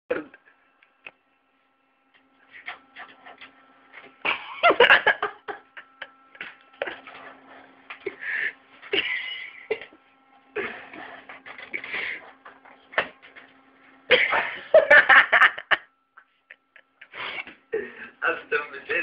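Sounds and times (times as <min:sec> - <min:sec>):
faint steady hum: 0:00.1 - 0:19.0
breathy bursts of noise: 0:08.1 - 0:08.7.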